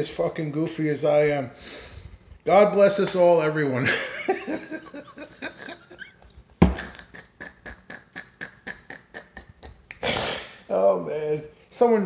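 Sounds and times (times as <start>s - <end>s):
man laughing hysterically: 3.8s - 10.0s.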